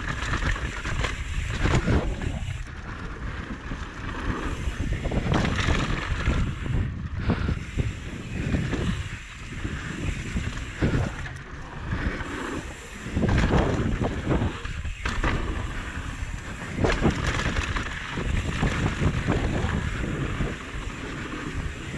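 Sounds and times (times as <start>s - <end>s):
bike knocks and rattles: 0.0s - 7.6s, 13.1s - 21.9s
wind noise on microphone: 0.0s - 21.9s.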